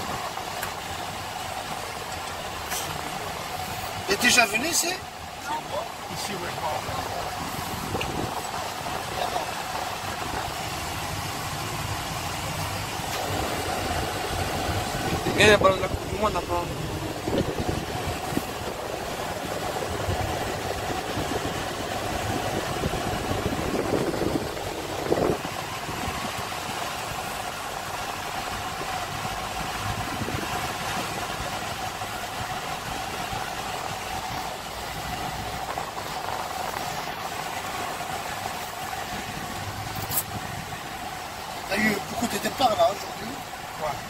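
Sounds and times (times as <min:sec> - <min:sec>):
car engine and road noise: 0:00.0 - 0:44.0.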